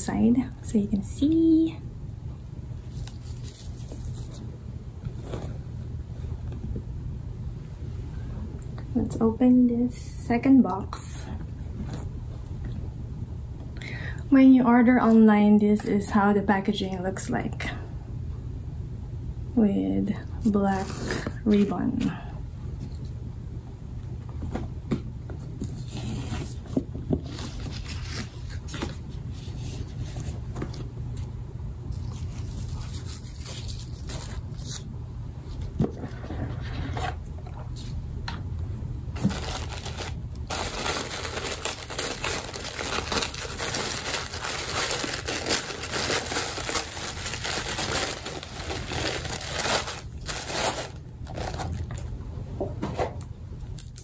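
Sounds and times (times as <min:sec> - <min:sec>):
tissue paper rustling: 0:02.8 - 0:04.5, 0:31.9 - 0:34.8, 0:39.2 - 0:51.9.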